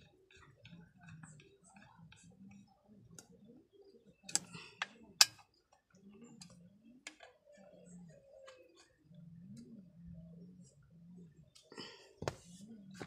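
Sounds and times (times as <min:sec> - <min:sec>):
faint low murmur: 0:00.0 - 0:13.0
hard parts clicking and tapping: 0:04.3 - 0:05.5.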